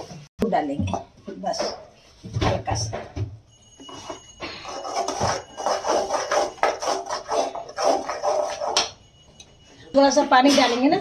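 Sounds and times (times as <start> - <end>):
metal spoon scraping thick sauce: 4.6 - 9.0.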